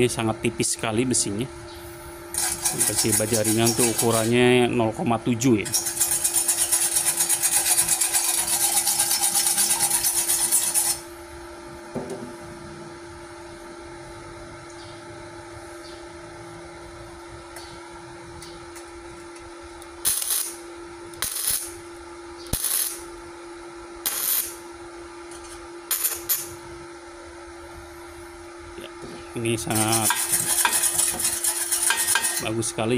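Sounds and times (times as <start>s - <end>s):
low steady hum: 0.0s - 32.9s
wire brush scrubbing steel: 2.3s - 4.5s, 5.6s - 11.0s, 20.0s - 20.6s, 29.5s - 32.8s
welding arc crackling: 19.9s - 21.9s, 22.5s - 23.2s, 24.0s - 24.6s, 25.9s - 26.6s.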